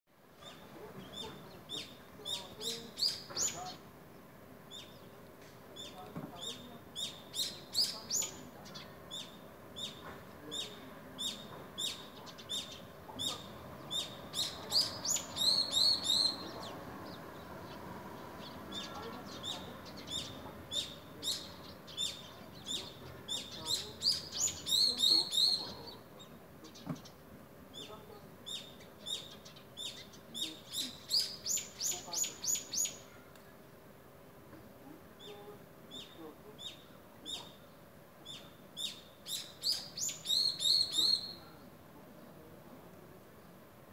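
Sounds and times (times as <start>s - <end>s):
small songbirds chirping: 0.3s - 33.7s, 35.0s - 41.6s.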